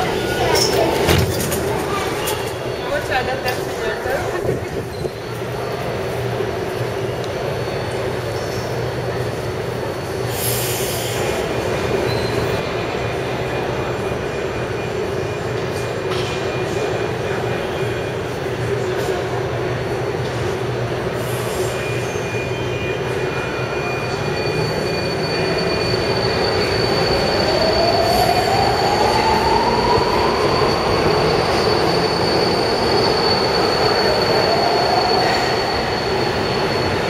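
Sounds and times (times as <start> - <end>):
metro train rumbling: 0.0 - 37.0
high steady whistle: 21.6 - 37.0
train whine rising in pitch: 21.8 - 37.0.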